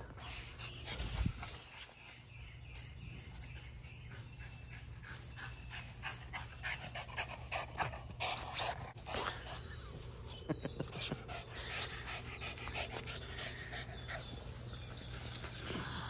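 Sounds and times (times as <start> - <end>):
dog panting: 3.8 - 9.8, 10.6 - 15.6.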